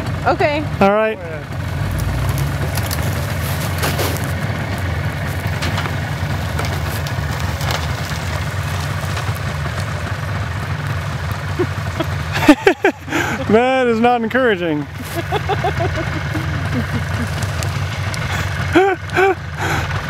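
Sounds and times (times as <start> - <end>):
car engine running under load: 0.0 - 20.0.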